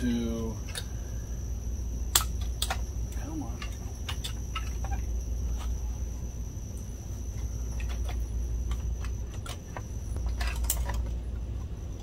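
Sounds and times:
low hum: 0.0s - 12.0s
plastic and metal parts clinking: 7.7s - 11.2s.

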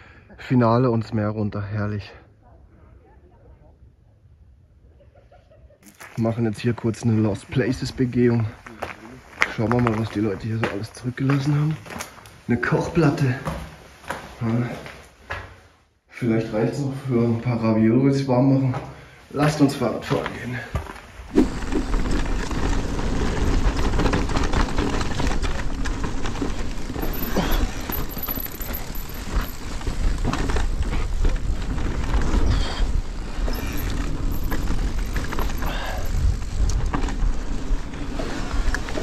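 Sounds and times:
tyres crunching over stones: 5.8s - 12.6s, 19.6s - 39.0s
bike clicking and clattering: 20.8s - 39.0s.

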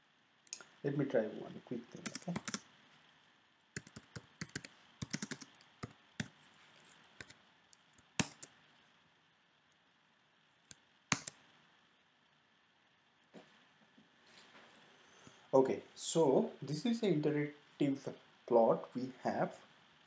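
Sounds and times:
computer keyboard typing: 2.0s - 2.6s, 3.8s - 6.4s, 8.1s - 8.5s, 11.1s - 11.4s.

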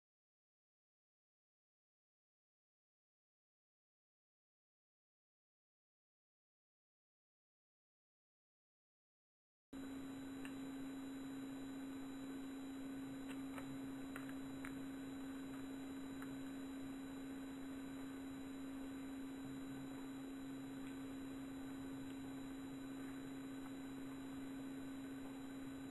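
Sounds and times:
low electrical hum: 9.8s - 25.9s.

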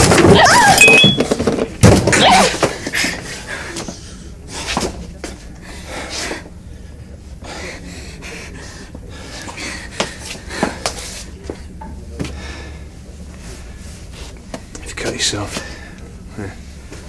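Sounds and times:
heavy breathing: 5.5s - 14.4s.

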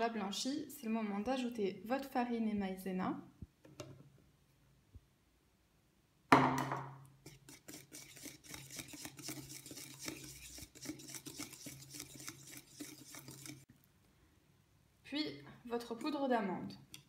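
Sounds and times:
loud knock: 6.3s - 6.9s
whisk scraping bowl: 7.2s - 13.7s.

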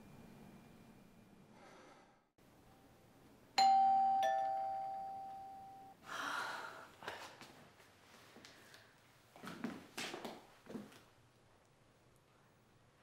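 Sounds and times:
two-tone doorbell chime: 3.6s - 6.0s.

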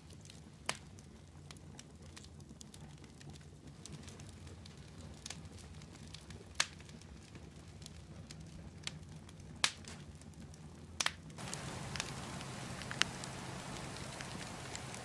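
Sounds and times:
wood fire embers crackling: 0.0s - 15.0s
sharp pops: 11.4s - 15.0s
steady fire hiss: 11.4s - 15.0s.

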